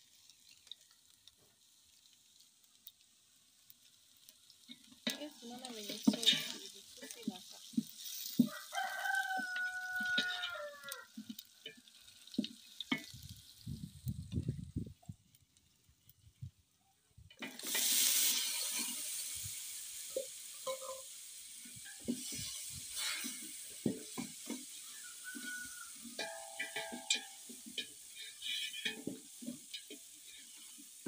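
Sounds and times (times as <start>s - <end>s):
food sizzling in oil: 0.0s - 16.5s, 17.2s - 31.0s
wooden spoon scraping metal pot: 4.7s - 13.3s, 20.1s - 31.0s.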